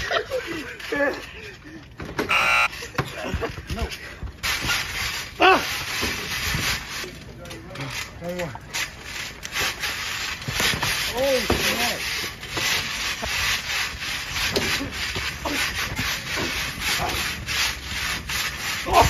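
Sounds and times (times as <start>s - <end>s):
rubbing on trampoline mat: 2.4s - 7.2s, 8.7s - 19.0s.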